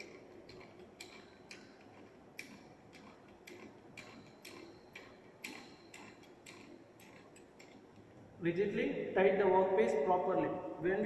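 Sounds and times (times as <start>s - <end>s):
chuck key clicking in lathe chuck: 0.0s - 8.1s.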